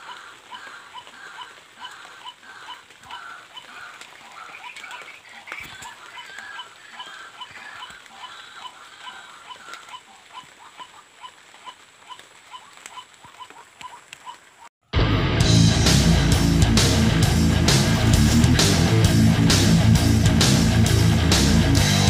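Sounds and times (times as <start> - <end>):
raspy animal call: 0.0 - 14.6
rustling in vegetation: 0.0 - 14.7.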